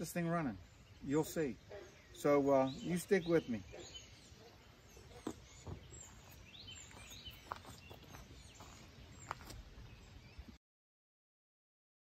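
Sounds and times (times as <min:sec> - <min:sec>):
low background hiss: 0:00.0 - 0:06.8
birds chirping: 0:00.0 - 0:10.6.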